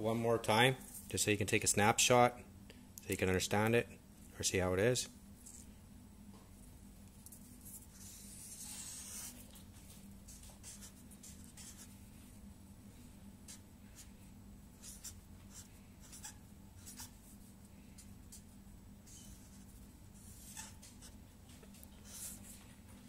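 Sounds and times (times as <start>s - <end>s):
marker scratching on paper: 7.6s - 9.5s, 10.3s - 12.0s, 14.8s - 17.5s, 19.1s - 21.2s, 22.0s - 22.5s.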